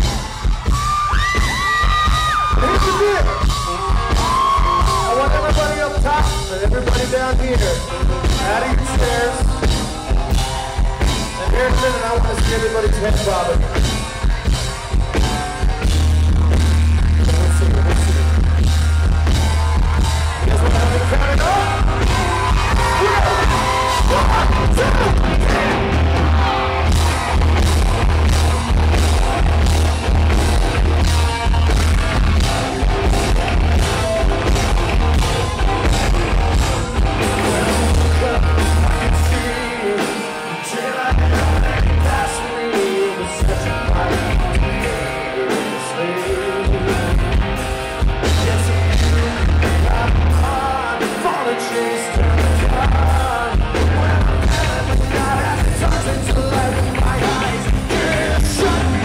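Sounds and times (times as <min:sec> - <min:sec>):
live rock band: 0:00.0 - 0:59.0
man singing: 0:01.2 - 0:13.9, 0:20.4 - 0:26.2, 0:35.8 - 0:47.6, 0:48.2 - 0:59.0.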